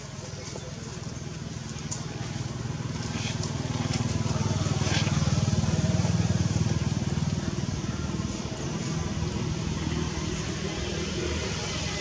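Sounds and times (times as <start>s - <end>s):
engine rumbling: 0.0s - 12.0s.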